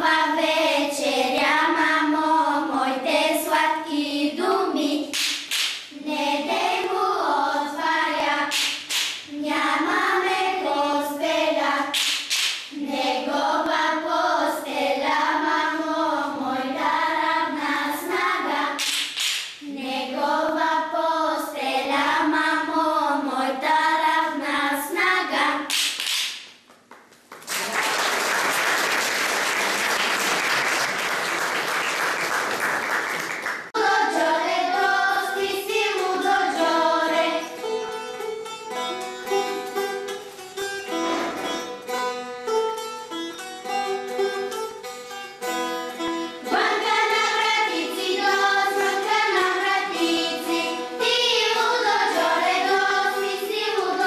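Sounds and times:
girls singing folk song: 0.0s - 25.8s, 33.7s - 38.0s, 46.2s - 54.0s
applause: 27.0s - 33.7s.

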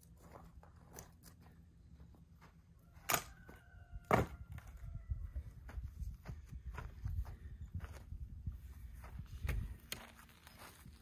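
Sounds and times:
footsteps on dirt and grass: 0.0s - 11.0s.

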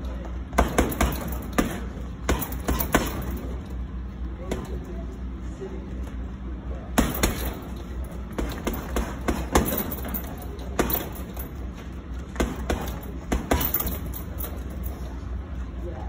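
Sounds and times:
punches hitting heavy bag: 0.5s - 3.6s, 7.0s - 11.6s, 12.3s - 14.7s.

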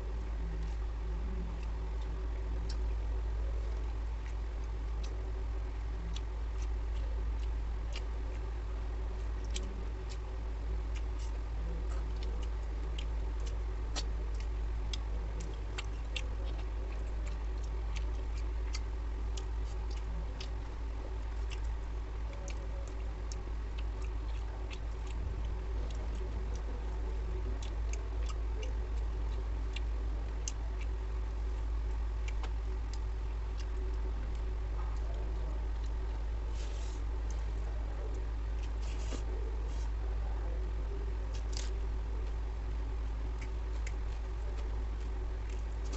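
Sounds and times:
steady low hum: 0.0s - 45.9s
wet chewing smacks: 9.2s - 40.0s.

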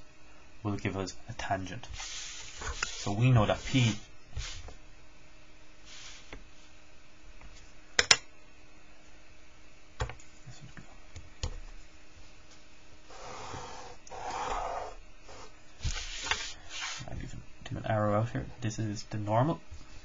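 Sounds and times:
marker rubbing along ruler edge: 1.9s - 4.7s, 13.1s - 17.1s.

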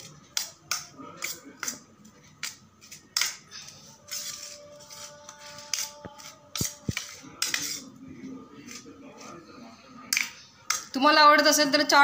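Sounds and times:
metal spoon scraping glass dish: 3.2s - 7.9s.

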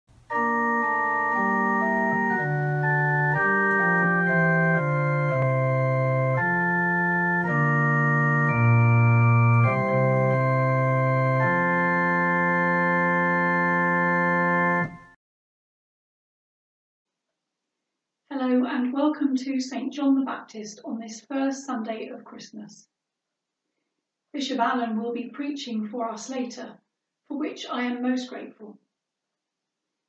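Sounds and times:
organ playing sustained chords: 0.1s - 15.2s.

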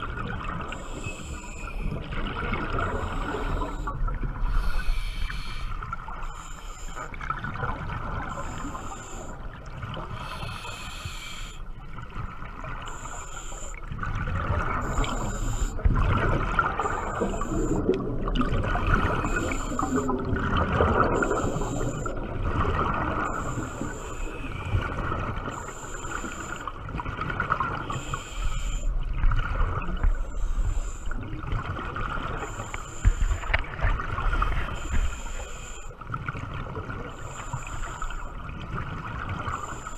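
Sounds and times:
diver breathing through regulator: 0.7s - 7.2s, 8.3s - 9.5s, 10.1s - 11.7s, 12.9s - 13.8s, 14.7s - 15.9s, 16.8s - 18.0s, 18.8s - 22.3s, 23.1s - 26.8s, 27.8s - 28.9s, 30.2s - 31.4s, 32.3s - 36.0s, 37.0s - 38.3s
bubbling gurgling exhalations: 14.2s - 23.7s.

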